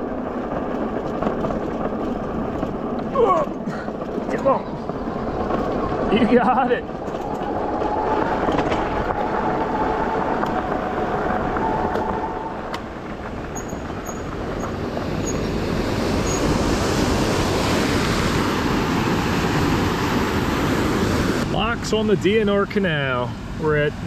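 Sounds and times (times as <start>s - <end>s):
tyres on gravel: 0.0s - 19.9s
electric bike motor whine: 6.9s - 21.4s.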